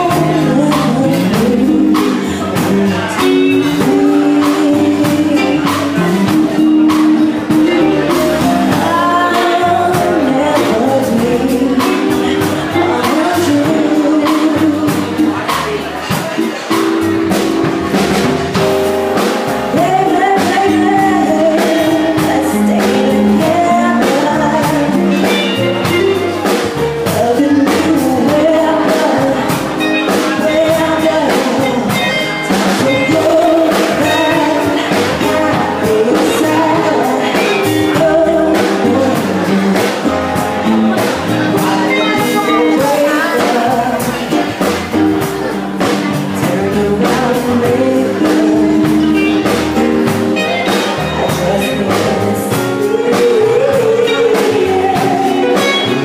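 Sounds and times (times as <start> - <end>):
drums: 0.0 - 56.0
electric guitar: 0.0 - 56.0
person singing: 0.0 - 56.0.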